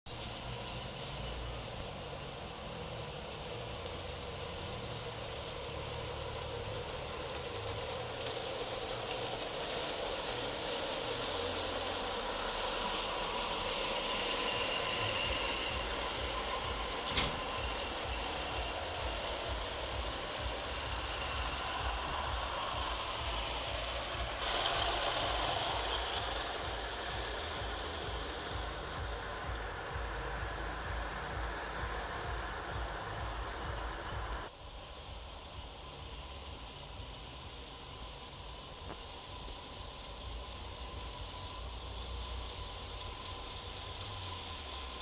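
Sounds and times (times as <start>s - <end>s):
wheels rumbling on rails: 0.0s - 45.0s
electric motor whine: 10.8s - 34.5s.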